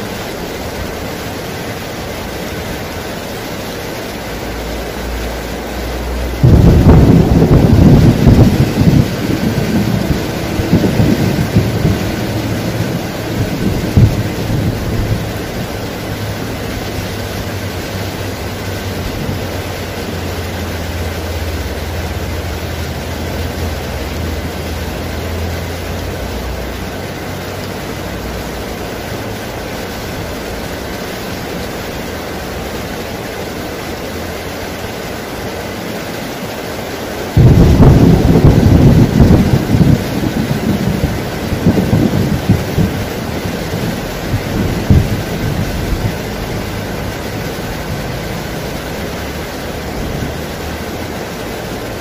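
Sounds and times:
heavy rain on foliage: 0.0 - 52.0
rolling thunder: 6.3 - 19.8, 37.3 - 49.0
sharp thunder crack: 6.4 - 16.4, 37.4 - 46.4.

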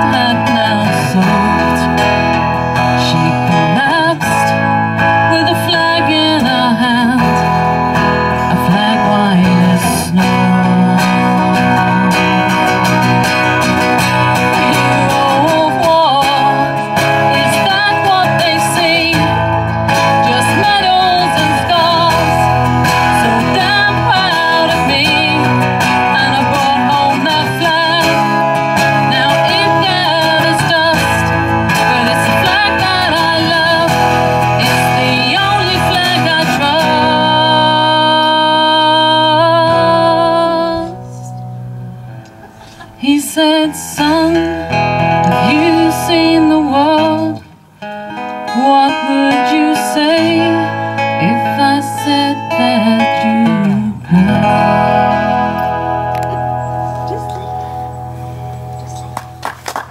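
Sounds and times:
person singing: 0.0 - 41.6, 42.5 - 57.9
acoustic guitars strummed: 0.0 - 59.9.

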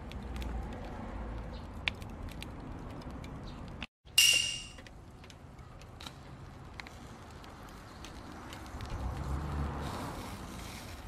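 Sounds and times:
fire crackling: 5.9 - 11.0.

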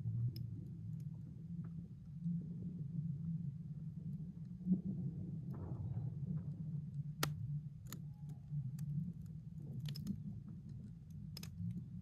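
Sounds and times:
low hum: 0.0 - 12.0
lake ice clicking: 6.5 - 12.0.

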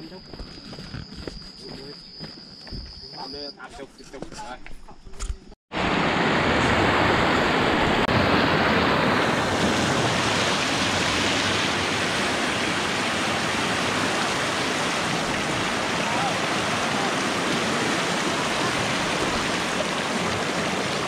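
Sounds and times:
floodwater rushing: 5.7 - 21.0.

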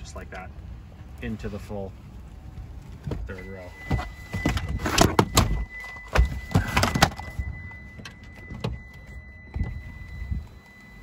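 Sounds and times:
clunks and knocks: 3.0 - 10.2
electric seat motor whine: 7.5 - 11.0.

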